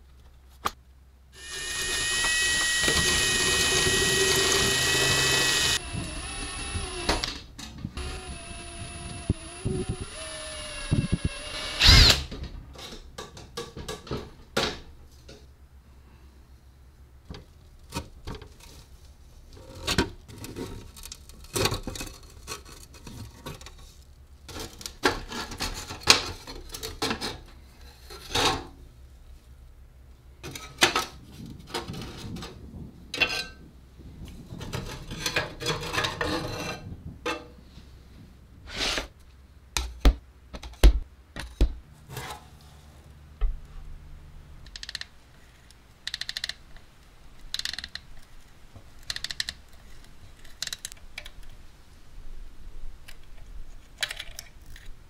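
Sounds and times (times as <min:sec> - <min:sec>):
socket wrench turning nut: 0:46.0 - 0:46.6, 0:47.5 - 0:48.0.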